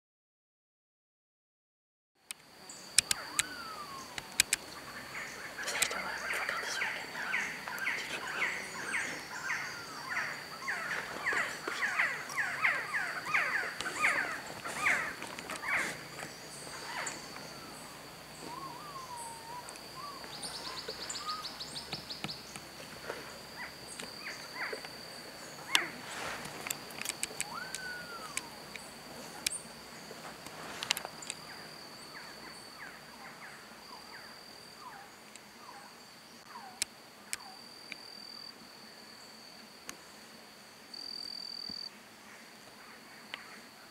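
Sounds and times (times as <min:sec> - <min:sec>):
sharp clicks: 0:03.0 - 0:03.5, 0:04.2 - 0:04.6, 0:26.6 - 0:28.8
birds whistling calls: 0:03.0 - 0:22.5, 0:27.4 - 0:28.9.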